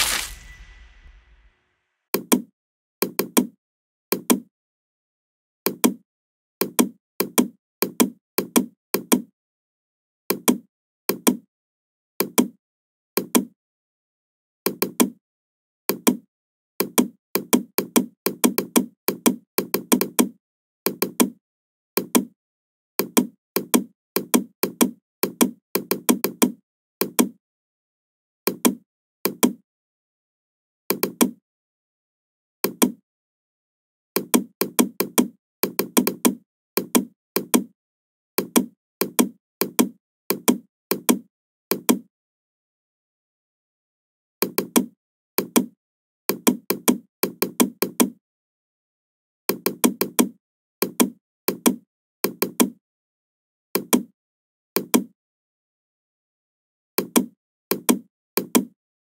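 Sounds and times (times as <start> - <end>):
mouse and keyboard clicks: 57.0 - 58.7.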